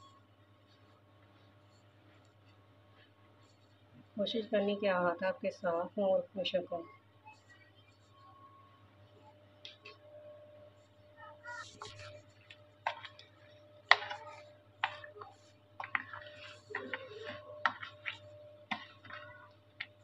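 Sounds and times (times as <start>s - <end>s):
pickle pieces tossed in plastic bowl: 12.0s - 20.0s.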